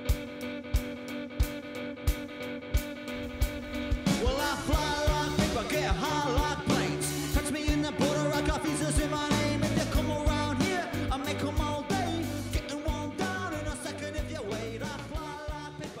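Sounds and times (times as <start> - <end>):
rock song with drum beat: 0.0 - 16.0
person singing: 3.9 - 16.0.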